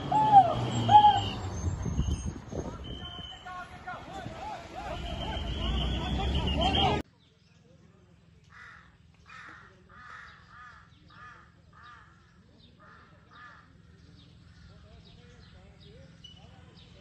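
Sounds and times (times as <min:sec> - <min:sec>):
crow cawing: 0:08.5 - 0:12.2.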